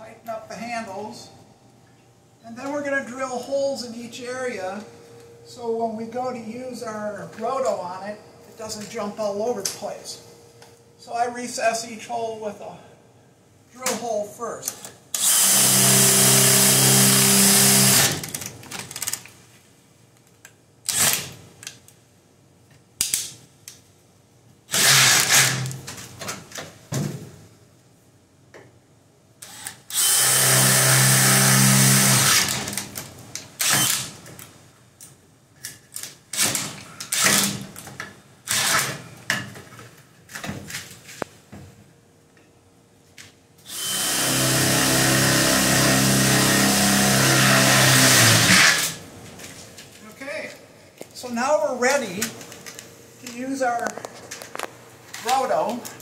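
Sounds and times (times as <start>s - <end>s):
cordless drill boring into metal: 15.2s - 18.2s, 24.7s - 25.7s, 29.4s - 32.7s, 33.6s - 34.1s, 43.7s - 49.0s.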